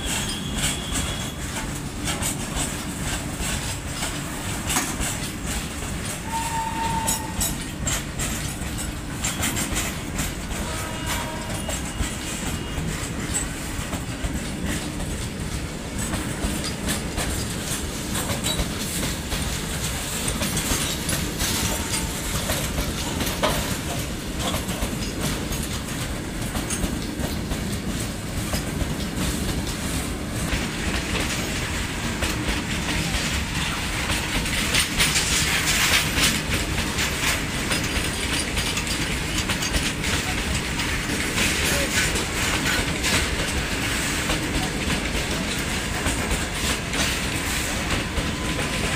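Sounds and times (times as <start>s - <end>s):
train wheels rumbling on rails: 0.0s - 48.9s
wheels clacking over rail joints: 0.0s - 48.9s.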